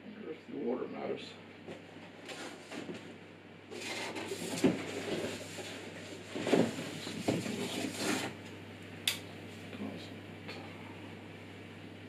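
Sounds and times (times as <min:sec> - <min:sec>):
cardboard rustling and scraping: 0:01.7 - 0:08.4.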